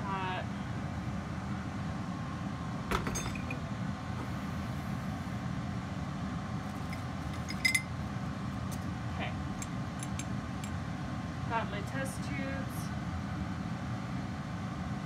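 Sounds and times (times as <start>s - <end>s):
blower hum: 0.0s - 15.0s
glass test tubes clinking: 6.9s - 7.9s.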